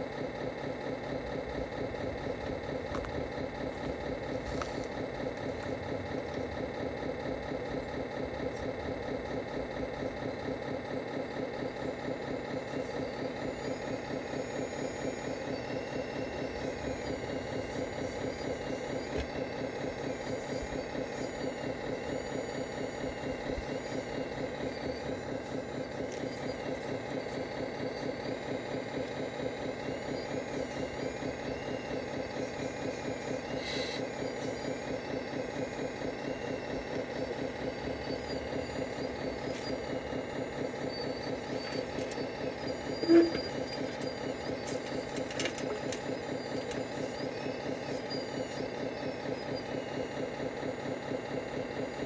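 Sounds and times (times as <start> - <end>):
model excavator engine drone: 0.0 - 52.0.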